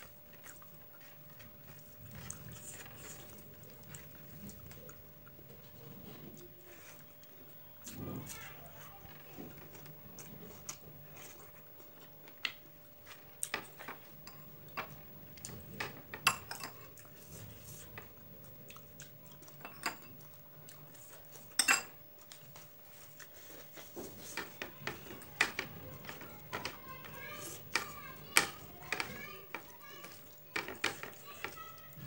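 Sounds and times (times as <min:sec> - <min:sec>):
chewing: 0:00.0 - 0:32.0
metal spoon clinking on ceramic bowls: 0:16.1 - 0:16.8, 0:19.6 - 0:20.2, 0:21.6 - 0:22.0.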